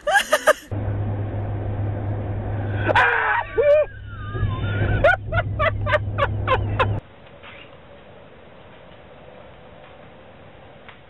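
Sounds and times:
car engine and road hum: 0.7 - 7.1.

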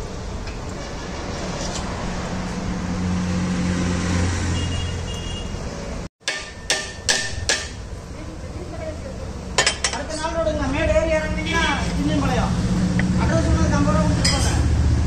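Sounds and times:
passing vehicle engine hum: 0.0 - 6.1, 10.5 - 15.0
road traffic roar: 0.0 - 15.0
sharp knock: 6.2 - 7.8.

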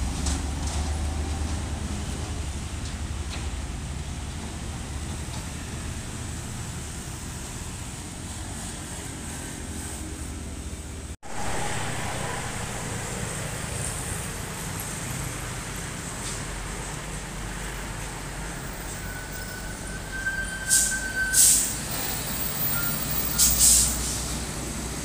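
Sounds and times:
passing vehicles: 0.0 - 25.0
street traffic: 0.0 - 25.0
truck diesel engines running: 0.0 - 25.0.

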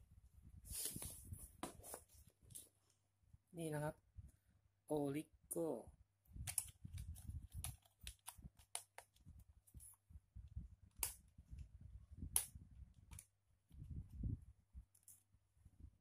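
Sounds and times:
cable handling clicks and taps: 6.4 - 10.0, 12.3 - 13.3, 14.8 - 15.3.

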